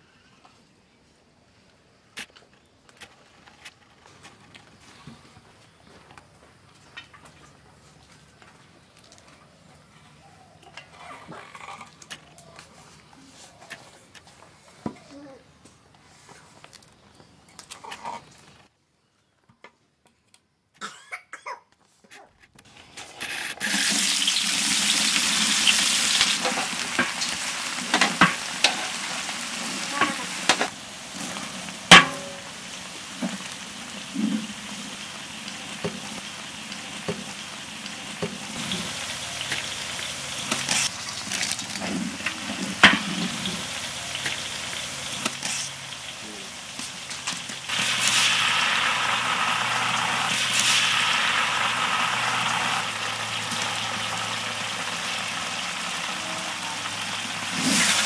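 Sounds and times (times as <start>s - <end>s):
onions sizzling in hot oil: 23.6s - 58.0s.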